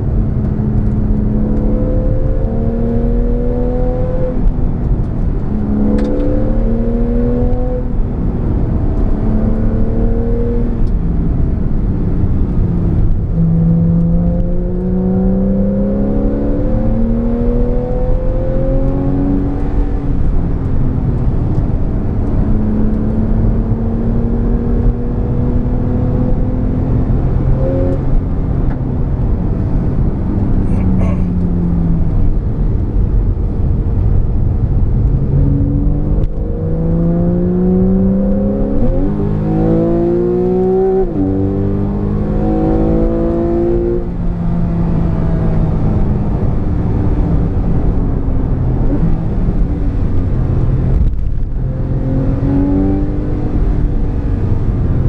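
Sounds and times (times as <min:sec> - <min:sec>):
car engine accelerating hard: 0:00.0 - 0:55.0
road rumble: 0:00.0 - 0:55.0
heavy wind noise: 0:19.1 - 0:43.0, 0:43.9 - 0:55.0.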